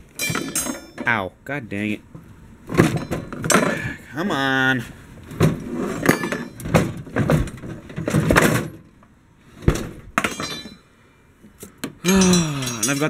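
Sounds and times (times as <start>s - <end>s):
metal clinks: 0.2s - 1.1s, 10.2s - 10.9s, 12.1s - 13.0s
tools clattering in wooden toolbox: 0.2s - 1.1s, 2.7s - 3.8s, 5.4s - 8.8s, 10.2s - 10.8s, 12.1s - 13.0s.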